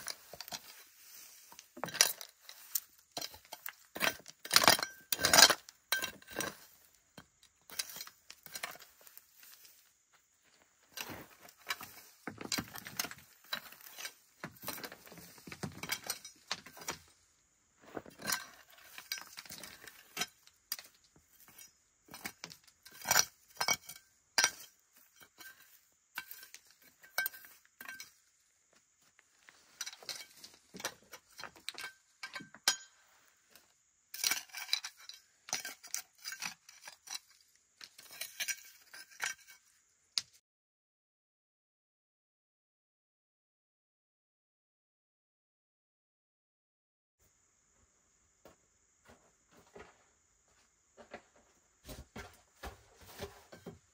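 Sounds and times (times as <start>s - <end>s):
knife scraping gravel: 0.0s - 39.9s.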